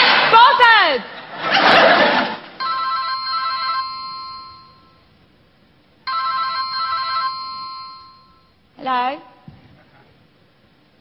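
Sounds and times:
telephone ringing: 2.6s - 5.0s, 6.0s - 8.6s.

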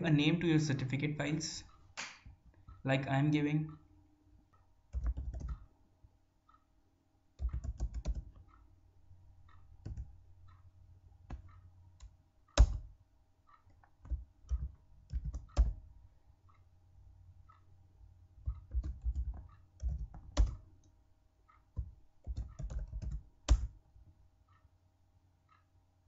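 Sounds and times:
typing on computer keyboard: 4.9s - 5.7s, 7.4s - 8.4s, 9.8s - 10.1s, 11.3s - 13.0s, 13.7s - 15.8s, 18.4s - 20.7s, 21.8s - 23.8s.

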